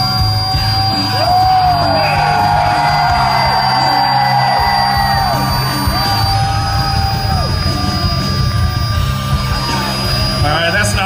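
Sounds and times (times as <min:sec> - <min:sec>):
power drill whirring: 0:03.5 - 0:11.0.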